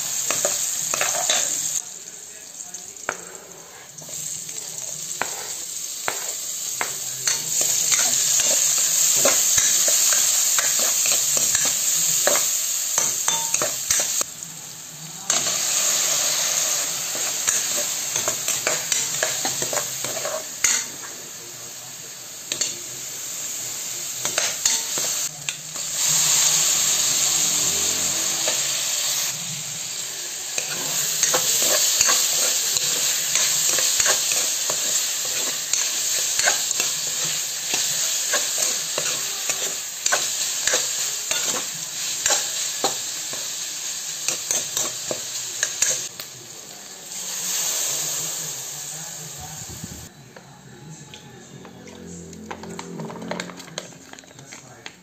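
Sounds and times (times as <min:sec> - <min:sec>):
food sizzling in a pan: 0:00.0 - 0:55.0
metal spatula scraping a pan: 0:05.2 - 0:06.4.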